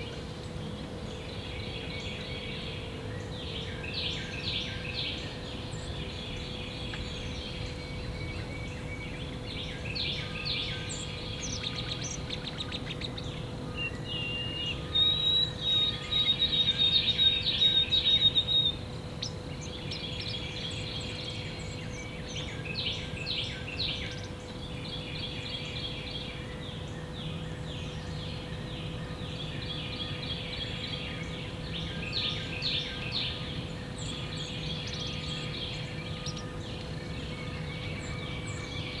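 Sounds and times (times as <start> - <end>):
faint steady hum: 0.0 - 39.0
songbirds singing: 0.0 - 39.0.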